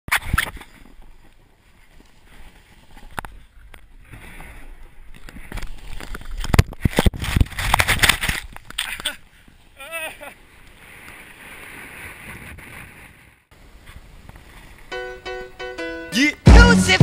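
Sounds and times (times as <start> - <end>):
rushing snow: 0.2 - 15.0
wind noise: 2.3 - 8.8.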